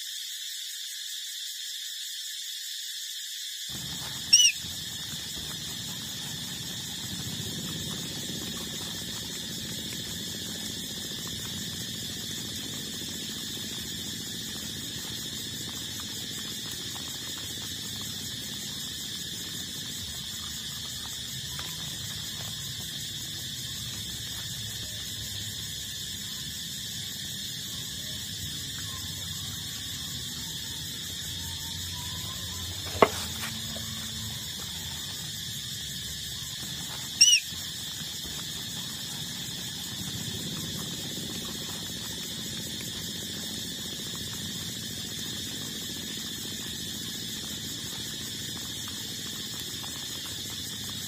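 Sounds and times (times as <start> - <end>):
puppy squeaking: 4.2 - 4.7, 37.2 - 37.5.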